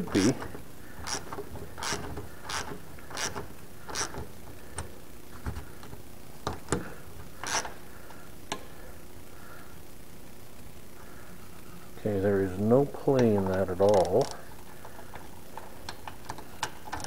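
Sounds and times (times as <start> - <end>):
socket ratchet clicking: 1.0 - 4.9, 7.4 - 7.8.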